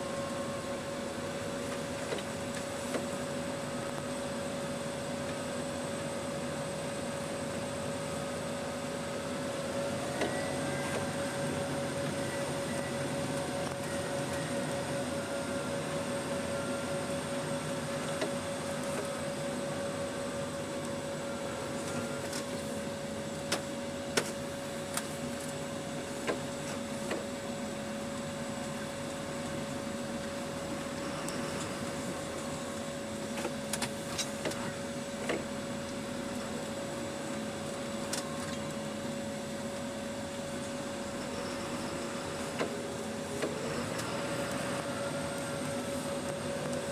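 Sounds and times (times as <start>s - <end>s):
constant whine: 0.0s - 46.9s.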